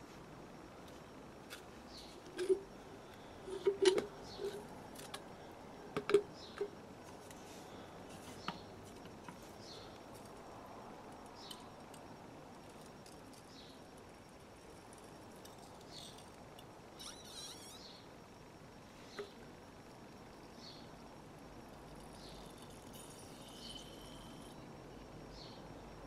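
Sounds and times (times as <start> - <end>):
faint high chirps: 14.7 - 18.2
short low squeaks: 17.0 - 18.0.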